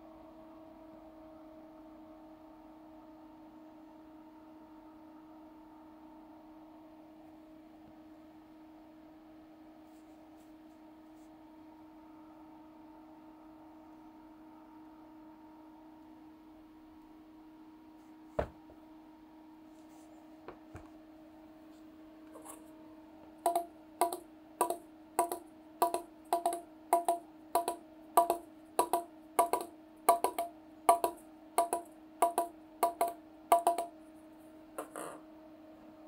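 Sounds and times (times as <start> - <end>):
steady low hum: 0.0 - 36.0
single knock: 18.4 - 18.6
ball bouncing on paddle: 23.5 - 33.9.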